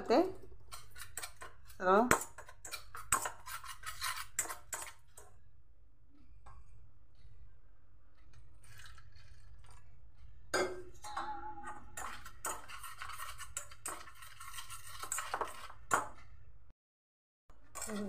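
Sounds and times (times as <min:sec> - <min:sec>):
whisk clinking against steel bowl: 0:00.7 - 0:05.3, 0:10.6 - 0:16.0.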